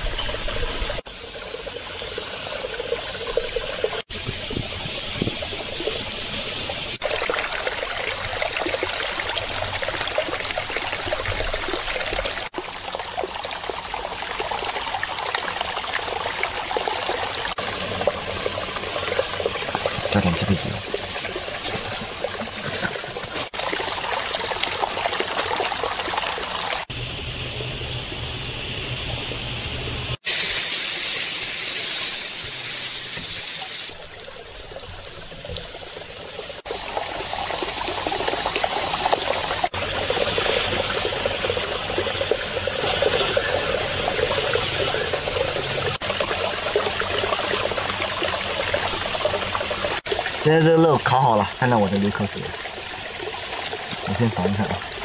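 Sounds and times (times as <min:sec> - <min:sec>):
meat sizzling on hot stone: 0:17.6 - 0:23.6, 0:30.3 - 0:36.7.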